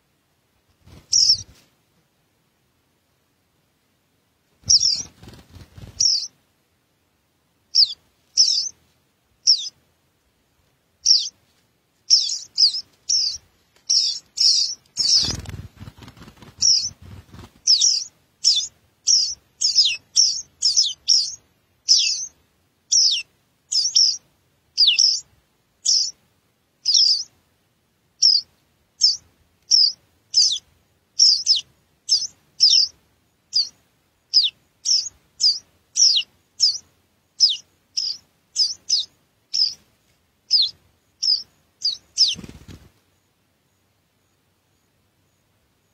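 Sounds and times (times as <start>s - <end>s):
nestlings begging chirps: 0.9s - 1.5s, 4.6s - 6.4s, 7.7s - 8.8s, 9.4s - 9.8s, 11.0s - 11.4s, 12.1s - 24.2s, 24.8s - 26.2s, 26.8s - 27.3s, 28.2s - 39.8s, 40.5s - 42.9s.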